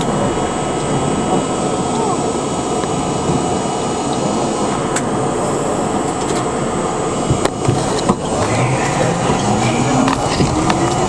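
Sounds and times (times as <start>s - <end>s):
train wheels rumbling on rail: 0.0s - 11.0s
wheels clicking over rail joints: 7.3s - 11.0s.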